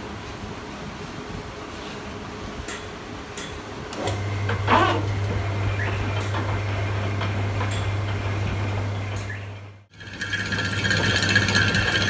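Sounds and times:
metal lathe humming: 4.1s - 12.0s.

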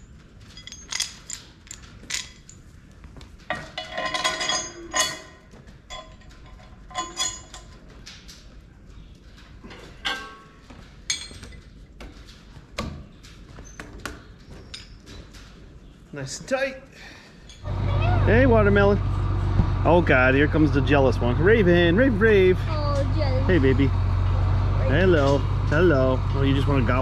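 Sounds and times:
ratchet wrench clanking on metal: 3.5s - 7.7s.

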